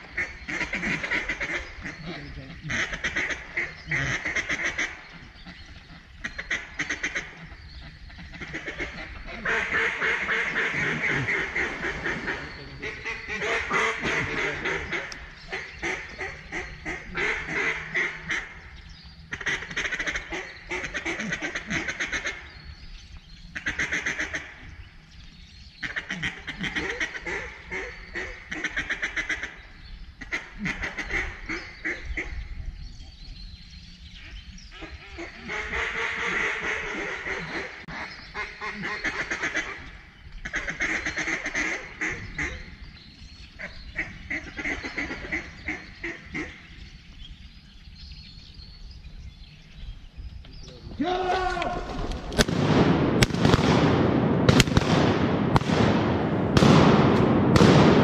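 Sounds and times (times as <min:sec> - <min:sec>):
duck call quacking: 0:00.2 - 0:05.0, 0:08.4 - 0:18.5.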